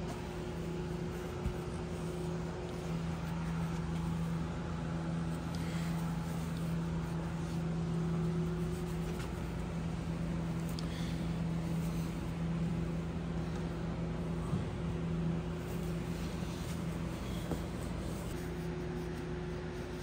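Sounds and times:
shop equipment humming: 0.0s - 20.0s
gloved hand rubbing: 0.1s - 10.2s, 15.4s - 20.0s.

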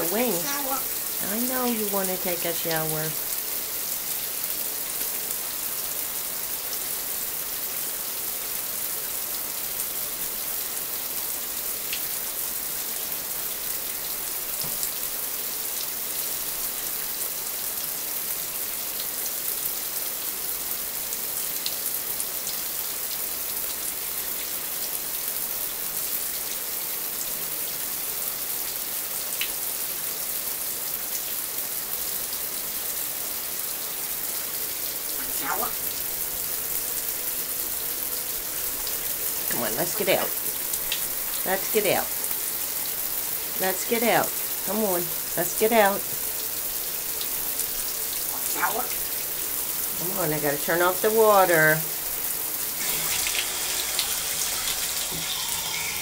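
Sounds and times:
shower water spraying: 34.0s - 45.4s, 51.4s - 56.0s.

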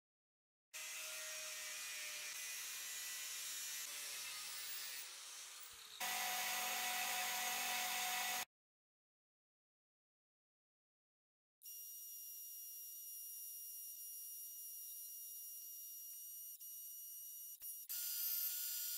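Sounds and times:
angle grinder cutting steel: 0.8s - 8.5s
belt grinder grinding steel: 0.8s - 8.5s.

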